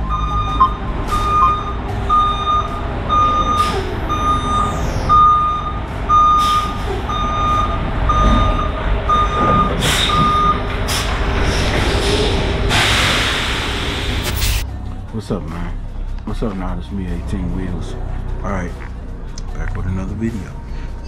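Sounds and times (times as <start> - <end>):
vehicle backup alarm beeping: 0.0 - 10.8.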